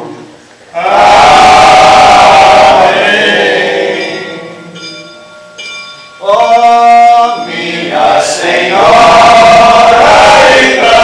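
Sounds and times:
men singing together: 0:00.8 - 0:04.7, 0:06.7 - 0:11.0.

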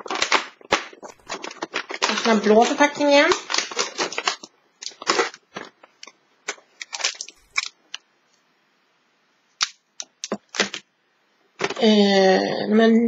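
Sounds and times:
cardboard and wrapper crackling: 0:00.0 - 0:08.0.

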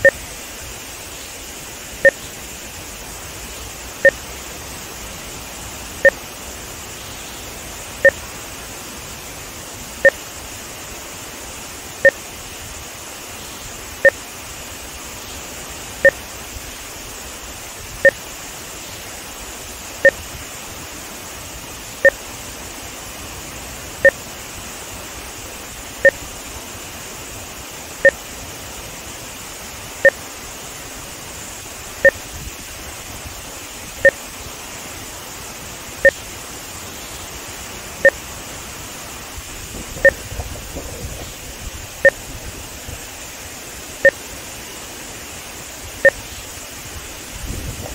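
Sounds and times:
two-tone electronic beeps: 0:00.0 - 0:00.2, 0:06.0 - 0:06.2, 0:08.0 - 0:08.2, 0:10.0 - 0:10.2, 0:20.0 - 0:20.2, 0:32.0 - 0:32.2, 0:38.0 - 0:38.2, 0:40.0 - 0:40.3.

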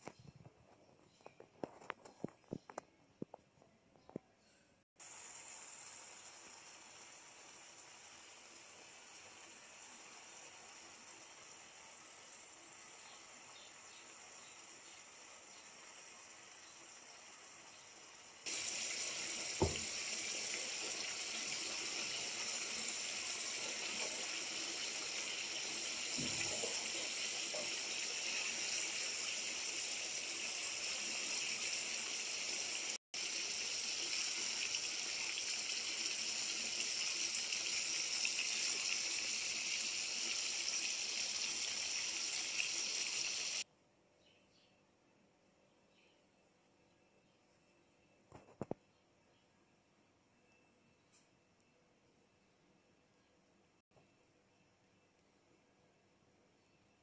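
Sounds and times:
food sizzling in a frying pan: 0:05.0 - 0:43.6.

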